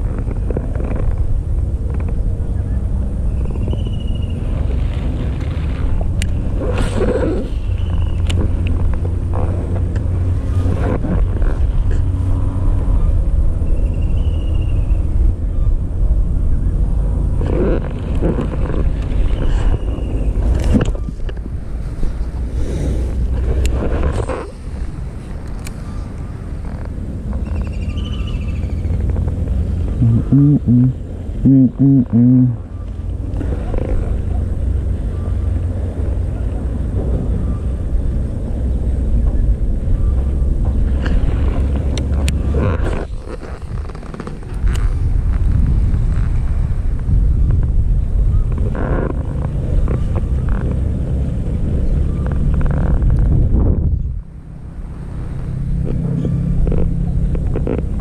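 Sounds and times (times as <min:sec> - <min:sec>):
wind buffeting microphone: 0:00.0 - 0:58.0
faint rustles: 0:40.2 - 0:54.2.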